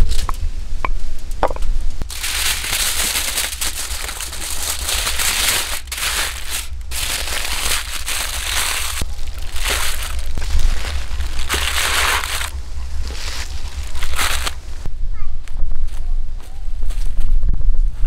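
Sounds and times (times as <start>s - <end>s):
aluminium foil crinkling: 2.0s - 14.9s.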